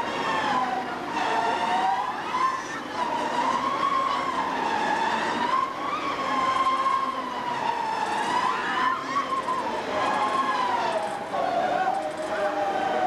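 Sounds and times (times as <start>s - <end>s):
crowd of riders screaming: 2.0s - 7.1s, 8.0s - 13.0s.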